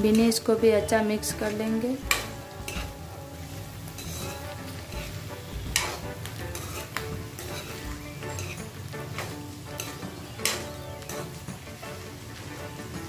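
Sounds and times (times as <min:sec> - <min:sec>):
beans sizzling in hot oil: 0:00.0 - 0:13.0
spatula scraping a steel pan: 0:02.1 - 0:03.0, 0:03.9 - 0:11.3.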